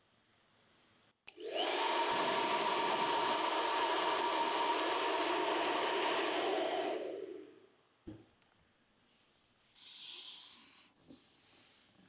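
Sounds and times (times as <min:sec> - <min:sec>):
hairdryer blowing: 0:01.3 - 0:07.5.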